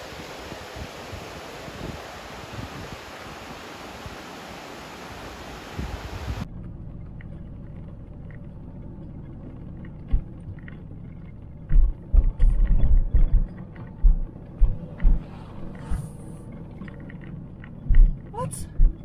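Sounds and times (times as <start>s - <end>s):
van engine and road rumble: 5.2s - 19.0s
heavy low thumps: 11.5s - 16.3s, 17.8s - 19.0s.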